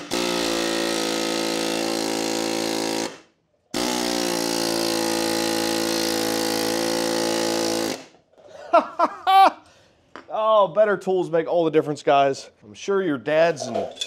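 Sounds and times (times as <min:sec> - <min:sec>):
pneumatic air hammer hammering: 0:00.0 - 0:08.2.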